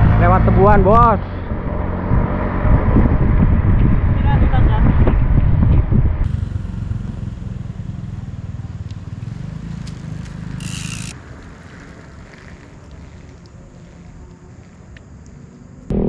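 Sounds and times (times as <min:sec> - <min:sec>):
wind noise: 0:00.0 - 0:07.4
bike riding rumble: 0:00.0 - 0:16.0.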